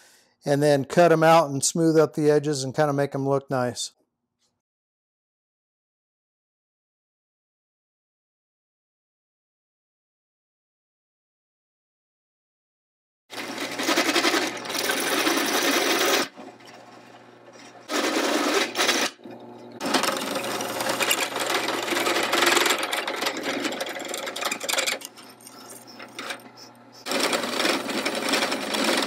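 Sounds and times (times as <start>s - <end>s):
drill press motor hum: 13.3s - 29.0s
drill bit cutting steel: 13.4s - 29.0s.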